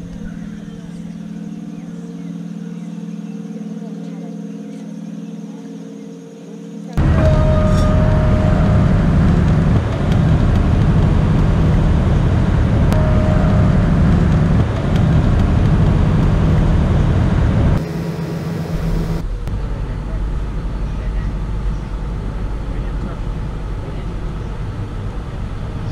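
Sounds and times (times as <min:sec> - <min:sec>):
boat engine rumbling: 0:07.0 - 0:25.9.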